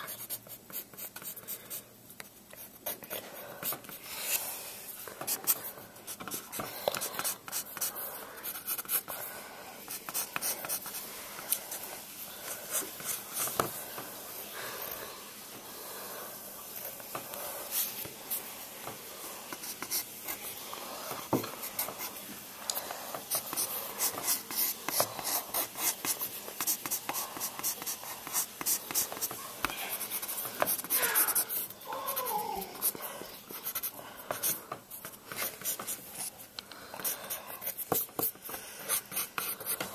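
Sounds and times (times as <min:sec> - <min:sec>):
pencil scratching on paper: 0:00.0 - 0:01.8, 0:05.2 - 0:13.8, 0:19.5 - 0:22.2, 0:22.8 - 0:31.8, 0:32.7 - 0:36.4, 0:37.0 - 0:39.9.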